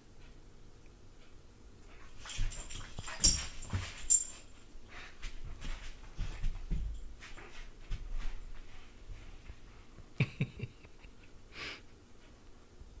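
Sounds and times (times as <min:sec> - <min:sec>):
puppy breathing and snuffling: 0:02.0 - 0:06.6.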